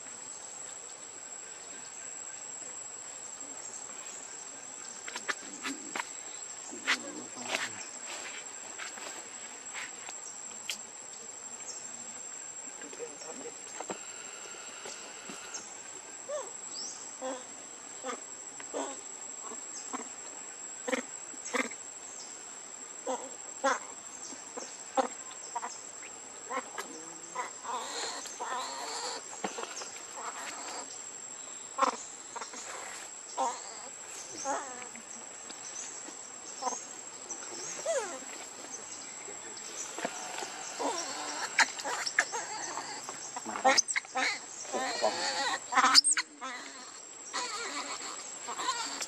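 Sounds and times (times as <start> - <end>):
high-pitched insect drone: 12.8 - 17.0, 36.6 - 49.0.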